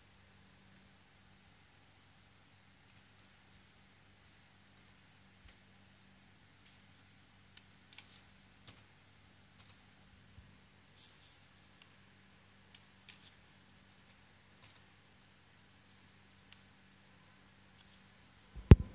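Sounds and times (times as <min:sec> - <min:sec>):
faint low hum: 0:00.0 - 0:18.9
mouse and keyboard clicks: 0:02.8 - 0:05.0, 0:07.6 - 0:08.9, 0:09.6 - 0:09.8, 0:12.7 - 0:14.9.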